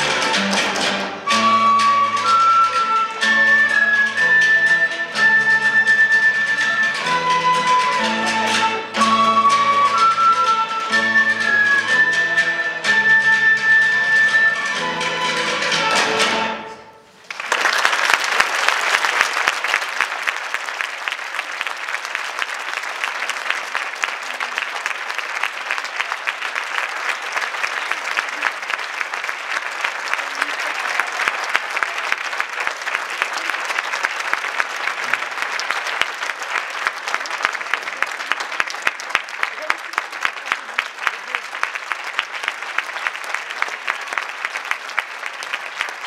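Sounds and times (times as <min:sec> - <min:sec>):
audience applauding: 0:17.2 - 0:46.0.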